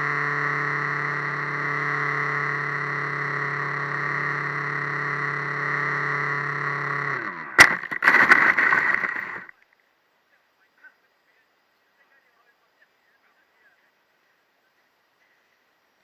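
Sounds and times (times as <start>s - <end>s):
model plane motor humming: 0.0s - 7.6s.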